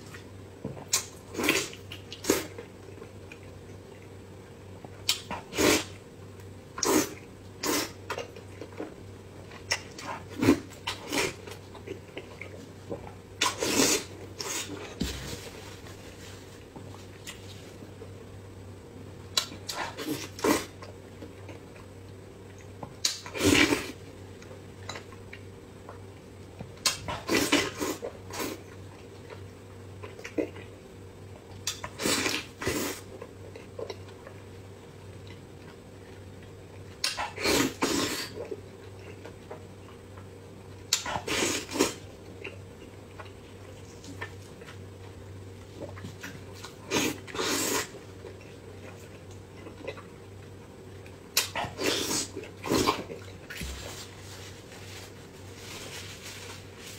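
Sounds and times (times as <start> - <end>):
steady low hum: 0.0 - 56.9.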